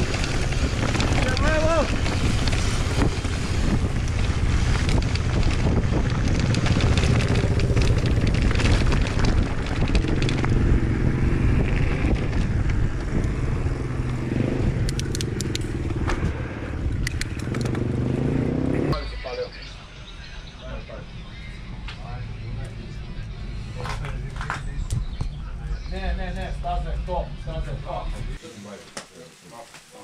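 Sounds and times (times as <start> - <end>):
wind on microphone: 0.0 - 17.7
bike rattling on dirt trail: 0.0 - 18.0
sharp clicks: 14.8 - 16.0, 16.9 - 17.8.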